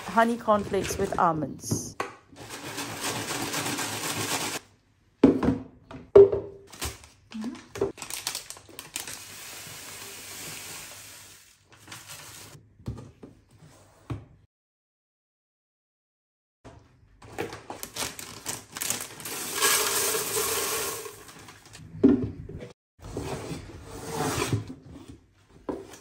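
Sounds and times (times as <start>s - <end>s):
cereal pouring into container: 2.4s - 4.6s, 8.1s - 12.6s, 18.6s - 21.6s
plastic packet crinkling: 7.9s - 9.4s, 17.7s - 19.8s
dry cereal rustling in container: 18.1s - 21.6s.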